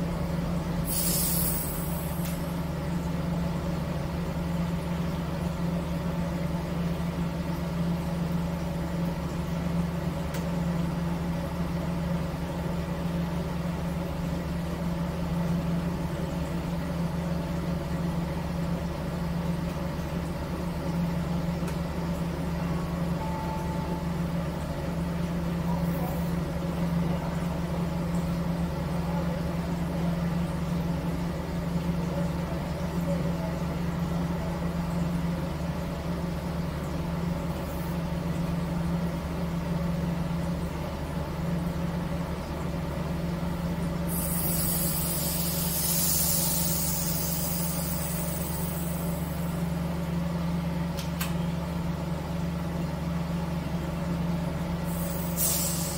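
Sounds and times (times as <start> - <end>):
hiss: 0.8 - 2.5, 44.1 - 49.6, 54.8 - 55.9.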